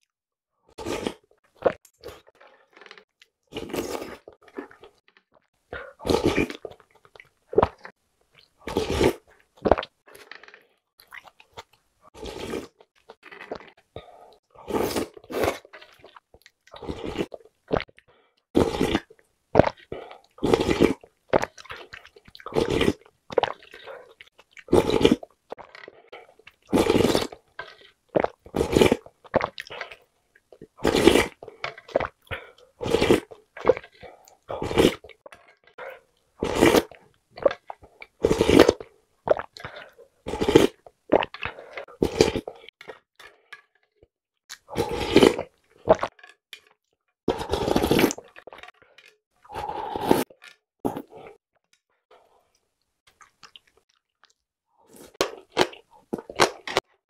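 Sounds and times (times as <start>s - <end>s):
person slurping broth: 0.7s - 5.0s, 5.8s - 6.8s, 8.6s - 10.6s, 12.2s - 16.0s, 16.8s - 17.9s, 18.6s - 30.1s, 30.7s - 35.2s, 35.8s - 43.0s, 44.5s - 46.1s, 47.3s - 48.8s, 49.4s - 51.4s, 54.9s - 56.8s
swallowing and eating: 0.7s - 46.7s, 47.3s - 51.4s, 52.1s - 57.0s.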